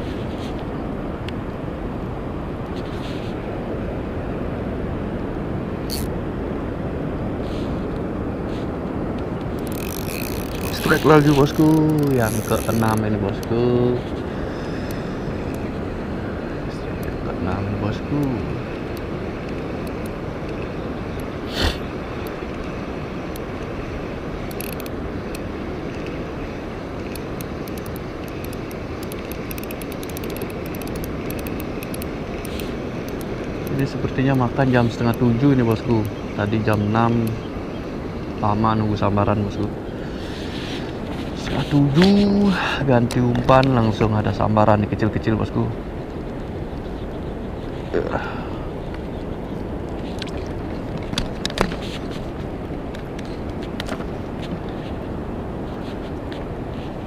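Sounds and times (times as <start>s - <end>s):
wind rumble on microphone: 0.0s - 57.0s
fishing reel being cranked: 5.9s - 6.1s, 9.6s - 13.1s, 24.5s - 24.9s, 27.1s - 33.2s
faint ticks: 14.8s - 15.7s, 27.0s - 33.9s.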